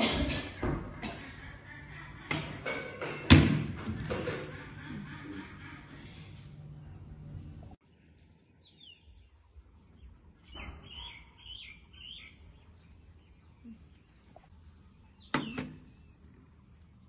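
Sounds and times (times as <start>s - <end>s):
small birds chirping: 7.8s - 17.0s.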